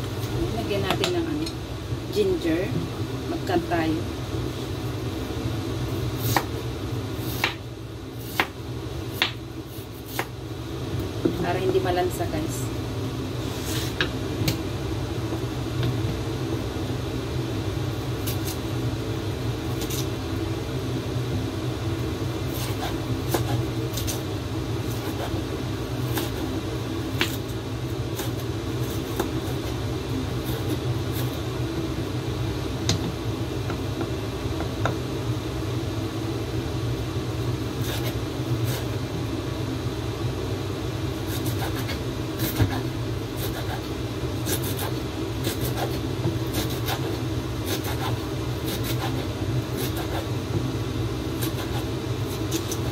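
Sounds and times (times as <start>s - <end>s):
knife chopping on cutting board: 7.4s - 7.6s
machine hum: 10.4s - 52.9s.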